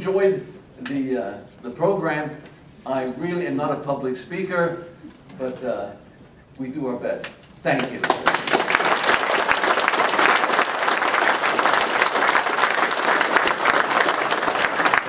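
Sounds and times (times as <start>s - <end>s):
people talking: 0.0s - 8.1s
audience applauding: 7.8s - 15.0s.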